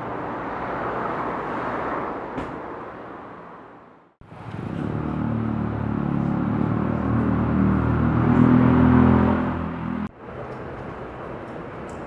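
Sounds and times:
vehicle engine humming: 4.2s - 10.1s.

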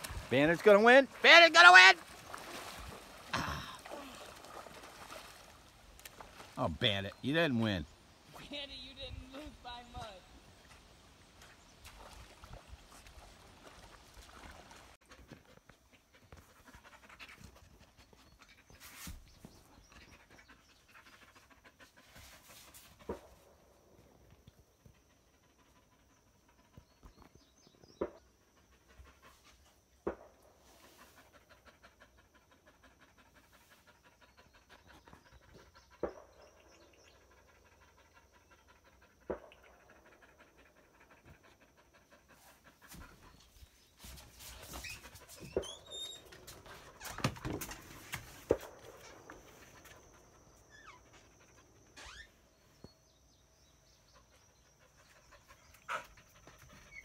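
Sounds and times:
dog panting: 15.1s - 18.8s, 19.6s - 22.7s, 30.8s - 51.9s, 53.7s - 57.0s.

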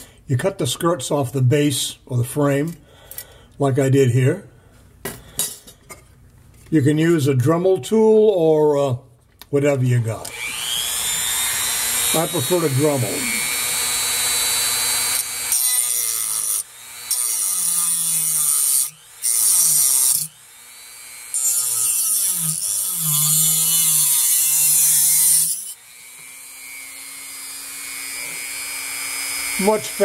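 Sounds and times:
rotary tool grinding: 10.3s - 30.0s
rotary tool motor whine: 10.3s - 30.0s.

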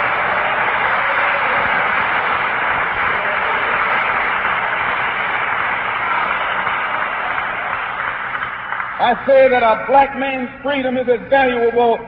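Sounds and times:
audience applauding: 0.0s - 10.1s
speech: 9.0s - 12.0s.

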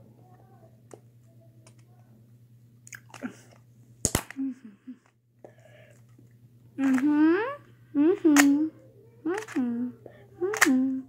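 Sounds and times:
low hum: 0.0s - 11.0s
puzzle cube clicking: 9.3s - 9.7s, 10.4s - 10.8s.

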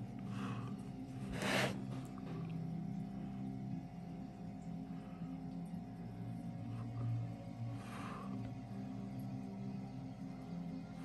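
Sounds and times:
ambient music drone: 0.0s - 11.0s
short scrape: 1.3s - 1.8s.

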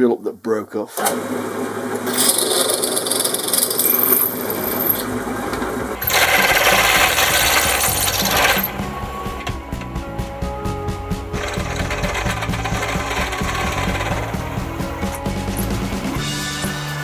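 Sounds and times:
pillar drill boring into metal: 1.0s - 9.4s, 11.4s - 16.0s.

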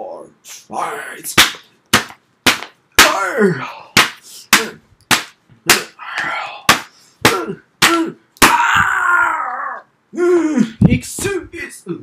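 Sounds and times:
person grunting: 3.0s - 4.0s, 5.6s - 10.8s.

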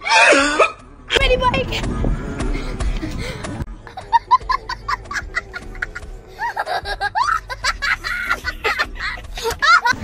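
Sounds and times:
young child laughing: 3.8s - 10.0s.

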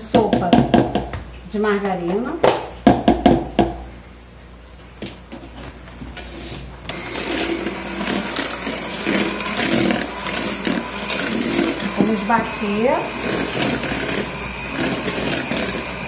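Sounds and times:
electric hand mixer whisking: 6.9s - 16.0s.

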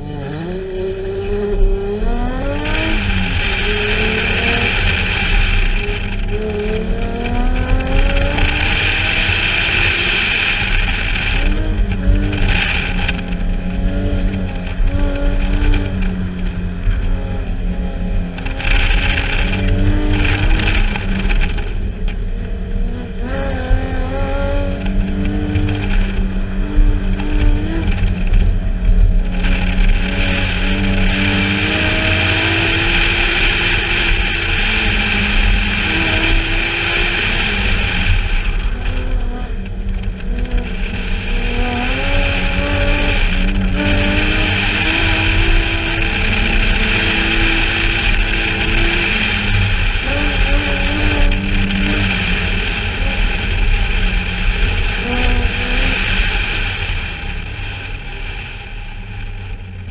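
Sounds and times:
car engine revving: 0.0s - 59.9s
wind rumbling on microphone: 0.0s - 59.9s.

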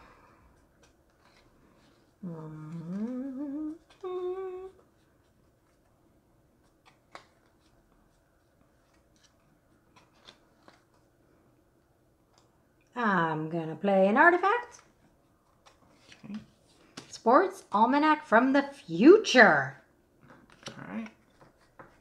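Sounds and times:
person humming: 2.2s - 4.8s
playing cards clicking: 8.9s - 11.0s.

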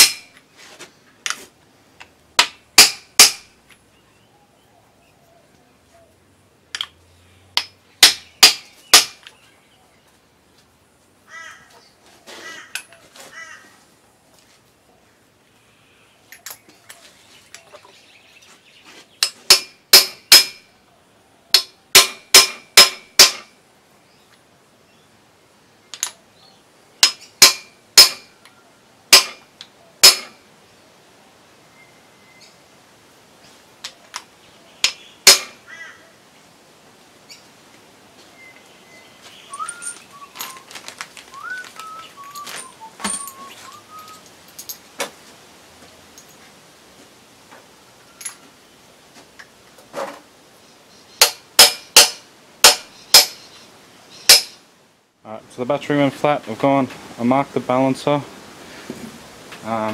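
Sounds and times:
hammer striking metal plugs: 0.0s - 0.3s, 2.4s - 3.5s, 19.2s - 20.6s, 21.6s - 23.5s, 27.0s - 28.3s, 29.1s - 29.4s, 30.0s - 30.4s, 34.8s - 35.6s, 51.2s - 53.4s, 54.3s - 54.6s
faint metal clinks and rattles: 16.2s - 18.0s, 39.5s - 41.2s, 42.0s - 45.1s, 46.0s - 46.6s, 48.0s - 48.5s.

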